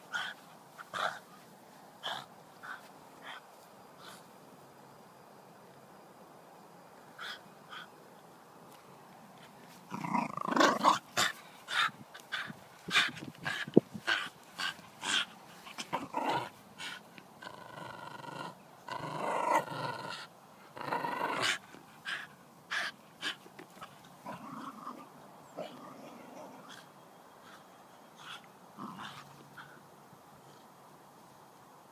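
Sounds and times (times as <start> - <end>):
dog growling and barking: 9.9 - 11.3, 15.0 - 16.5, 17.4 - 21.6, 24.2 - 26.8, 28.8 - 29.3.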